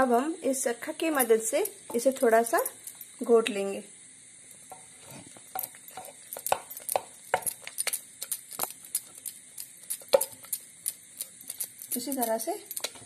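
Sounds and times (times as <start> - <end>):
wooden stick knocking in metal pot: 4.7 - 10.6.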